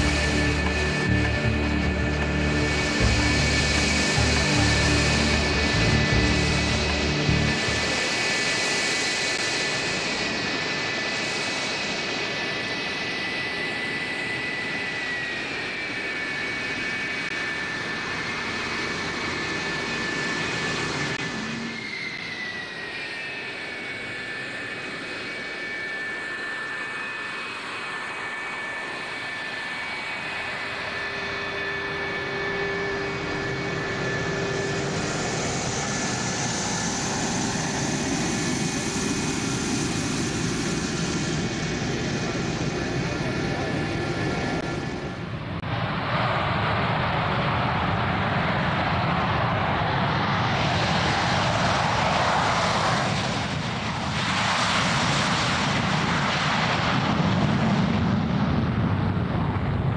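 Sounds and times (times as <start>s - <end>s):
low hum: 0.0s - 8.3s, 29.4s - 46.0s
jet engines whining: 0.0s - 59.9s.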